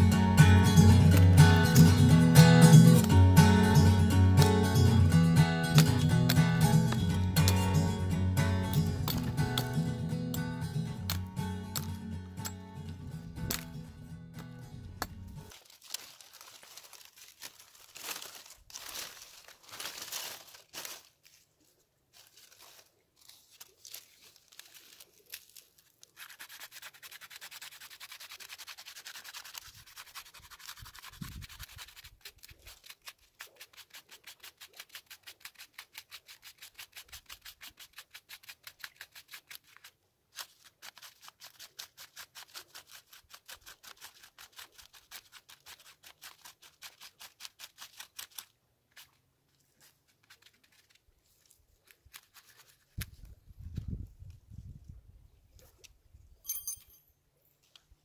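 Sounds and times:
knife scraping bark: 0.0s - 15.5s, 24.7s - 49.2s, 49.8s - 53.2s.

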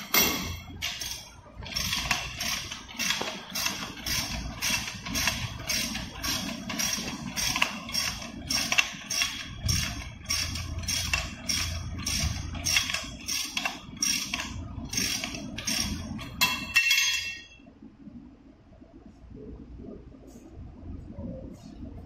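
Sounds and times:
ratchet wrench clicking: 0.0s - 16.6s.

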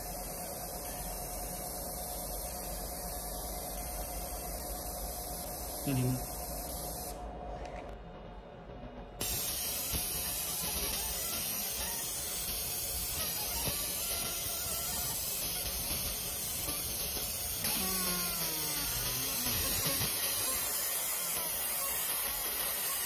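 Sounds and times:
laser hiss on metal: 0.0s - 7.2s, 9.2s - 23.0s.

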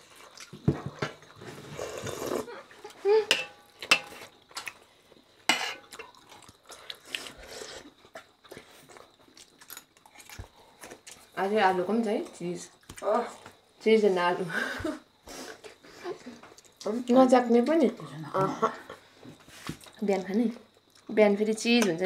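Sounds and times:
metal spoons clinking on plates: 3.3s - 4.2s.

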